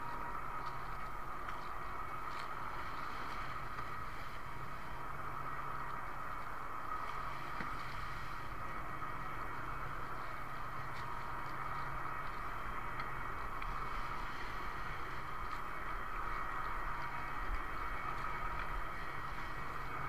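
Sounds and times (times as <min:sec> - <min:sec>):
choppy sea water: 0:00.0 - 0:20.0
low hum: 0:00.0 - 0:20.0
wind: 0:00.0 - 0:20.0.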